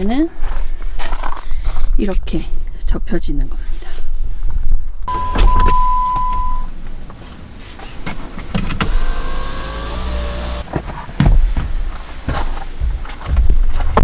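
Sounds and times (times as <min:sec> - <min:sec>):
steady beep: 0:05.1 - 0:06.7
small electric motor whirring: 0:08.8 - 0:10.6.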